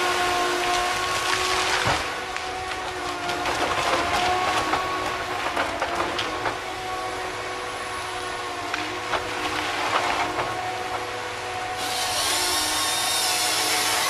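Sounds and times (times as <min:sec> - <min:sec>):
harvester engine and hydraulics whine: 0:00.0 - 0:14.0
wood cracking and knocking: 0:00.6 - 0:06.7.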